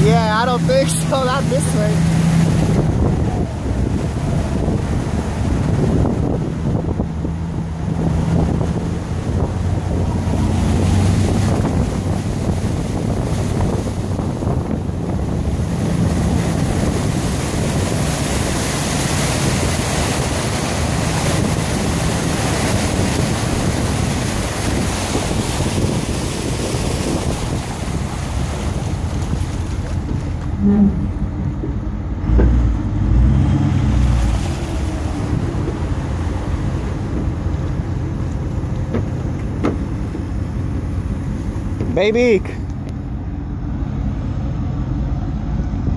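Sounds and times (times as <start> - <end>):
pickup engine droning: 0.0 - 45.9
wind buffeting microphone: 0.0 - 45.9.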